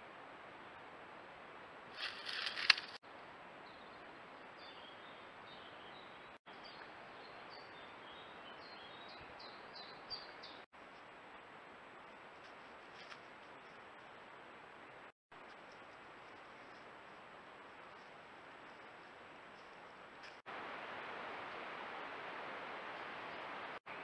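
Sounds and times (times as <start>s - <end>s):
noisy rustle: 1.8s - 3.0s, 10.8s - 24.0s
small birds chirping: 3.6s - 10.7s.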